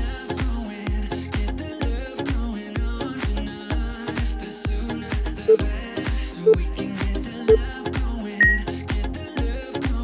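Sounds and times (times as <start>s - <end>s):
upbeat dance music: 1.3s - 9.0s
electronic timer beep: 8.4s - 8.6s.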